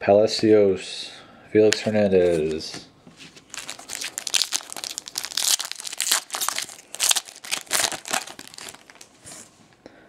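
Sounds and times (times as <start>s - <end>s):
foil wrapper tearing and crinkling: 3.4s - 9.2s.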